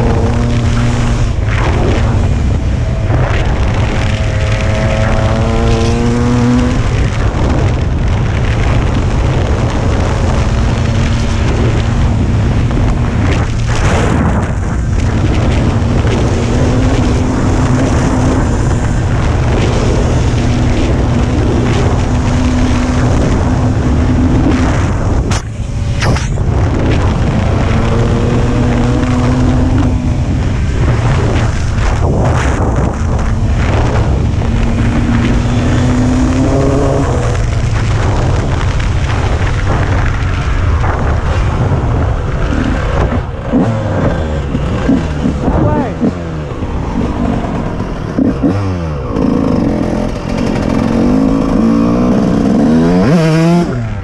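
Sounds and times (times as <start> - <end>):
dirt bike engine accelerating: 0.0 - 54.0.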